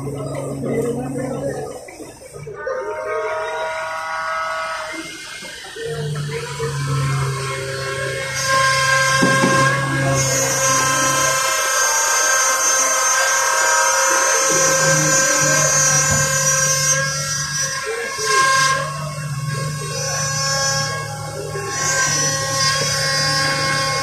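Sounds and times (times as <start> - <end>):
truck engine hum: 0.0 - 2.6, 14.0 - 24.0
hydraulic crane whine: 0.0 - 24.0.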